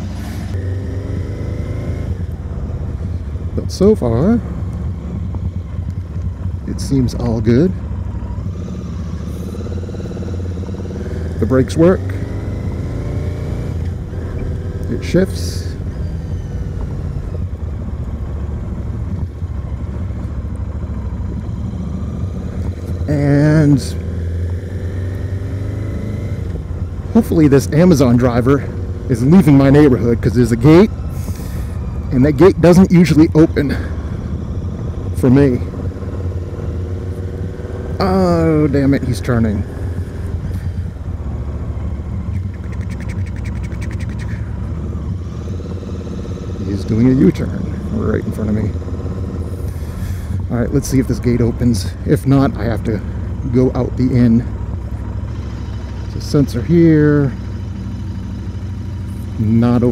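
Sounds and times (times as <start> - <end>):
motorcycle engine running: 0.0 - 59.9
rapid ticking: 42.3 - 44.7.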